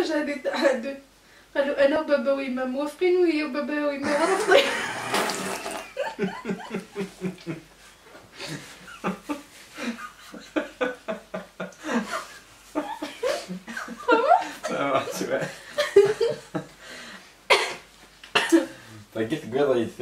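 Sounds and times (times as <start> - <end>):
water spraying from mouth: 4.0 - 6.0
man and woman laughing: 4.0 - 7.7, 8.4 - 16.7.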